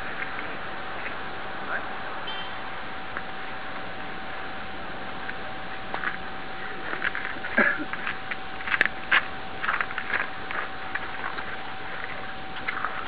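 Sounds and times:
steady tone: 0:00.0 - 0:13.0
footsteps crunching on icy slush: 0:05.9 - 0:13.0.

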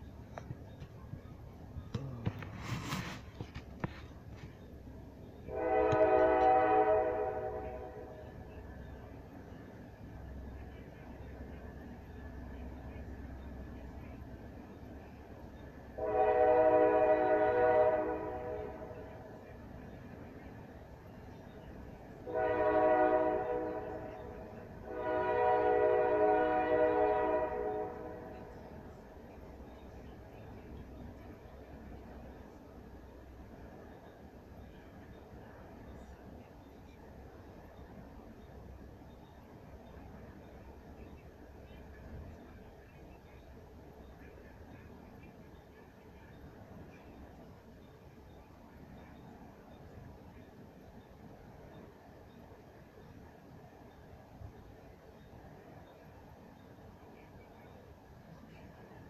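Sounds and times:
short rustle: 0:02.1 - 0:04.6
long horn blast: 0:05.5 - 0:08.2, 0:16.0 - 0:19.2, 0:22.2 - 0:28.5.

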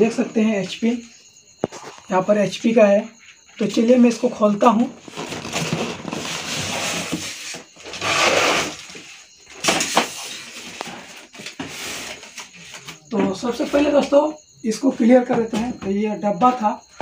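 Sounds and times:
cardboard and foam rustling: 0:05.0 - 0:12.8.

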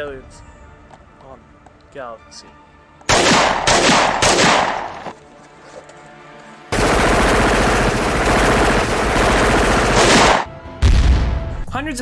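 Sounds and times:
rapid automatic gunfire: 0:03.1 - 0:05.0, 0:06.7 - 0:10.5
single gunshot: 0:03.1 - 0:05.1, 0:10.0 - 0:11.4.

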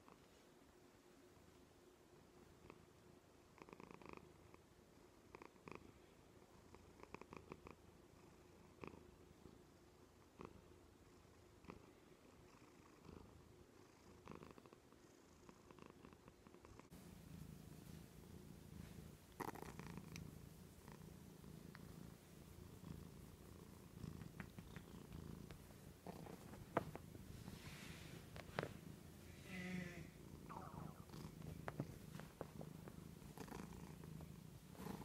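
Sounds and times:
cat purring: 0:01.2 - 0:35.0
faint clicks: 0:24.1 - 0:25.6.

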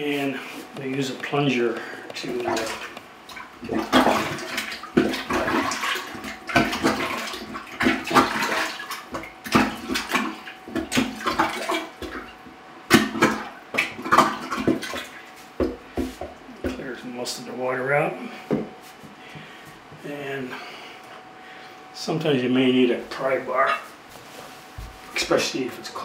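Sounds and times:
water sloshing and gurgling: 0:00.9 - 0:16.8
plunger pumping in toilet bowl: 0:02.1 - 0:16.7.

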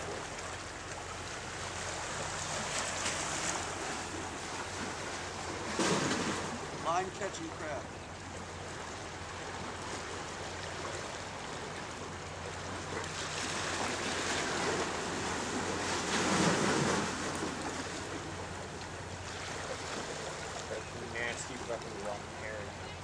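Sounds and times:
waves washing against rocks: 0:13.2 - 0:18.4.

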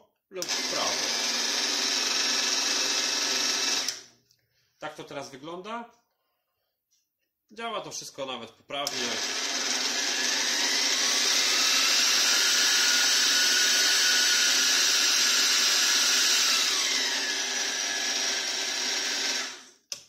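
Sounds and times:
milling machine motor whining: 0:00.4 - 0:04.0, 0:08.9 - 0:19.6.

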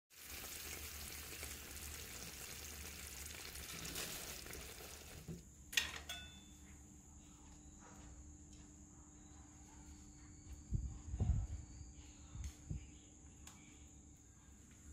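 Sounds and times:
curry sizzling in a pan: 0:00.1 - 0:05.4
faint steady high tone: 0:06.0 - 0:08.2.

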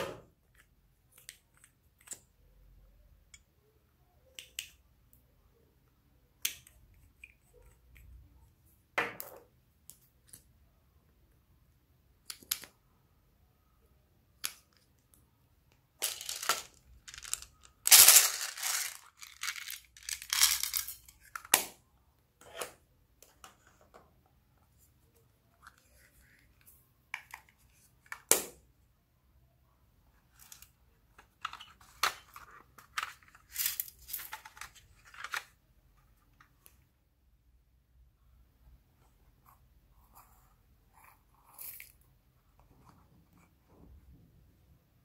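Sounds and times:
rustling handling noises: 0:16.0 - 0:21.3.

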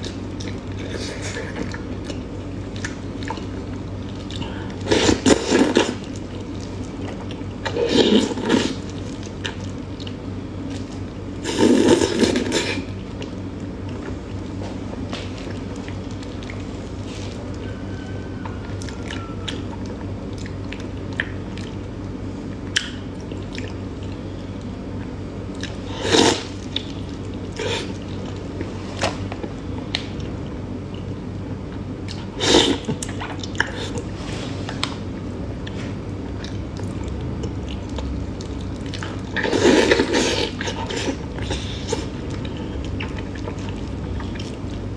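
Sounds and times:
chewing and wet mouth smacks: 0:00.0 - 0:11.1, 0:11.8 - 0:17.7, 0:18.4 - 0:24.3, 0:25.0 - 0:25.8, 0:26.4 - 0:31.1, 0:31.7 - 0:34.1, 0:34.7 - 0:44.9.

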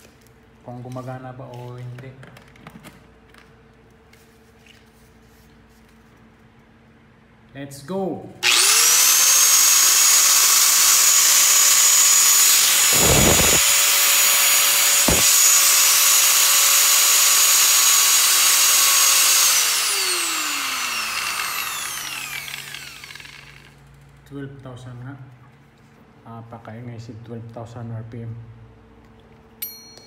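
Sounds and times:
angle grinder motor whine: 0:08.4 - 0:23.8.

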